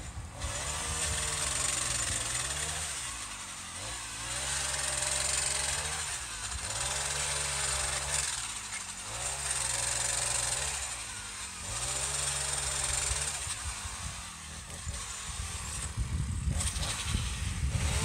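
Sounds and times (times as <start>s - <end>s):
small engine revving: 0.0s - 18.0s.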